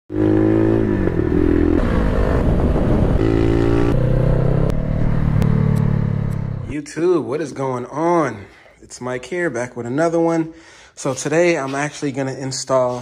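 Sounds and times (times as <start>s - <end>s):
motorcycle engine revving: 0.1s - 6.7s.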